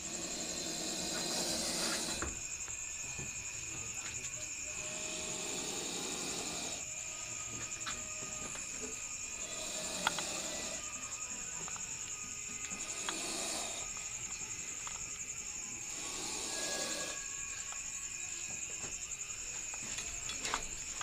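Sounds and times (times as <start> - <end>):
cricket trilling: 0.0 - 21.0.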